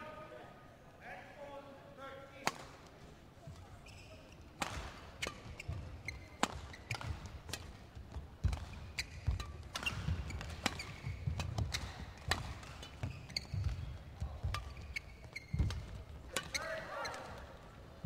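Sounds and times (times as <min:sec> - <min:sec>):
racket hitting shuttlecock: 0:02.4 - 0:02.8, 0:04.6 - 0:17.5.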